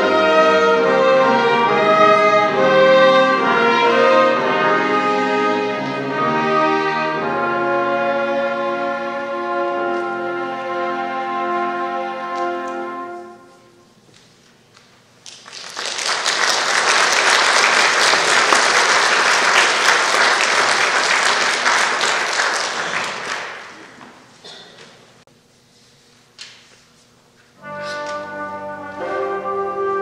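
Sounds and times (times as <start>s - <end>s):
string orchestra chord: 0.0s - 13.5s, 27.6s - 30.0s
audience applause: 15.2s - 24.2s.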